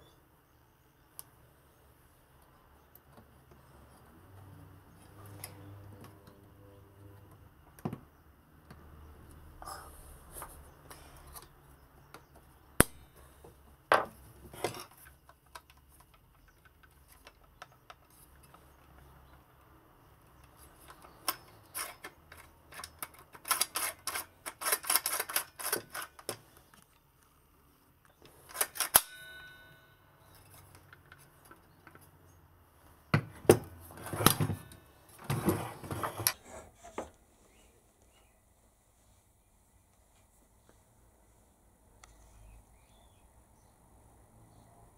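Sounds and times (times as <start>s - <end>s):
brief metallic ring: 28.9s - 30.1s.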